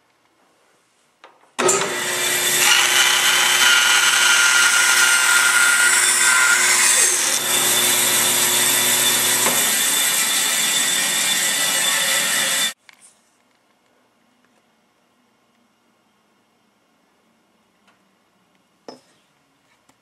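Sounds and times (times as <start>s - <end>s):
power saw cutting wood: 1.6s - 12.8s.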